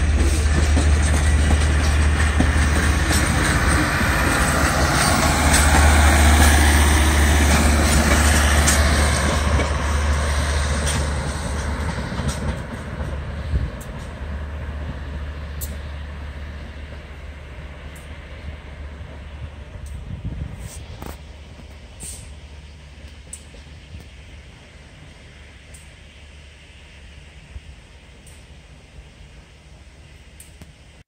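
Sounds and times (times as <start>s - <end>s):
sharp rail clicks: 0.0s - 16.0s
train rolling on rails: 0.0s - 31.0s.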